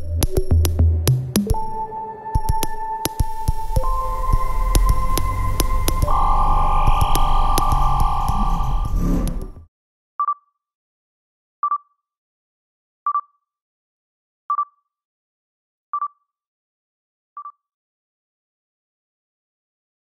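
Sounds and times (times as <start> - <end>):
loud sound cut off: 2.6 - 9.7
short electronic beeps: 3.5 - 9.5.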